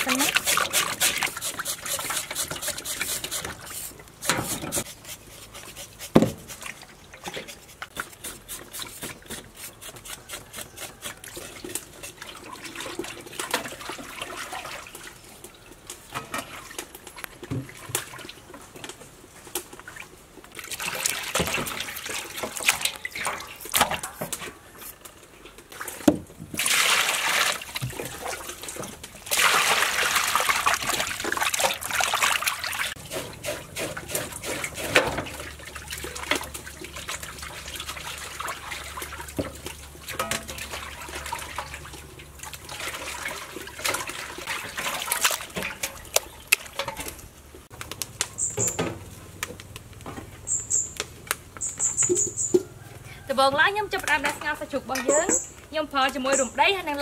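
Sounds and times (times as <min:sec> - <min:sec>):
knife scraping vegetables: 0:00.1 - 0:12.2, 0:33.0 - 0:35.2
tap water splashing: 0:20.6 - 0:24.0, 0:25.8 - 0:33.0, 0:35.0 - 0:47.1.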